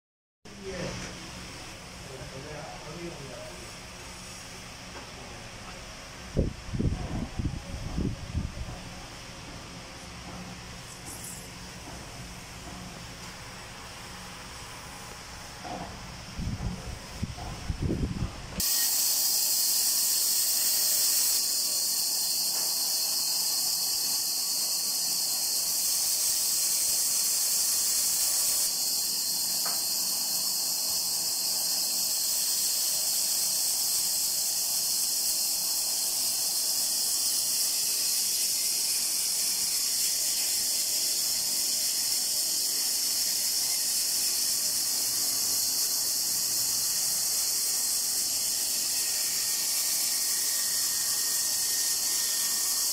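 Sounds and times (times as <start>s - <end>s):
band saw cutting wood: 18.6s - 52.9s.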